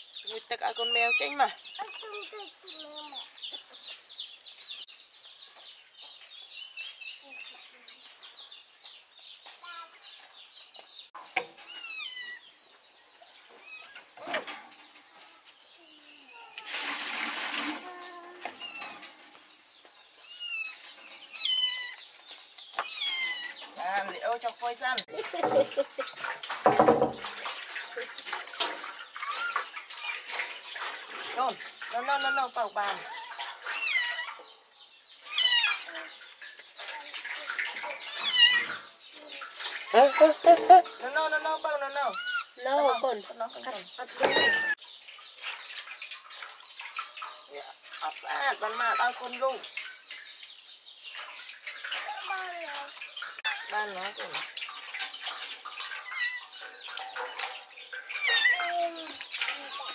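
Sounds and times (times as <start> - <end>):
faint water splashing: 0.0 - 59.9
kitten meowing: 11.7 - 12.4, 20.3 - 22.0, 22.8 - 23.5, 35.3 - 35.9, 38.1 - 38.8, 58.1 - 59.1
knock: 26.6 - 27.2.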